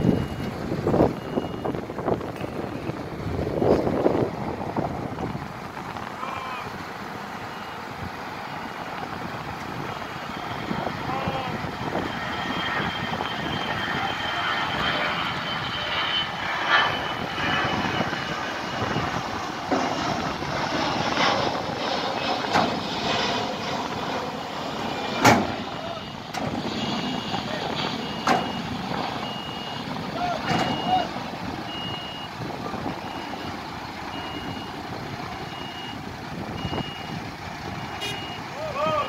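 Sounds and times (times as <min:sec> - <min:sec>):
jet engine rush: 0:00.0 - 0:39.0
faint high whine: 0:09.8 - 0:36.0.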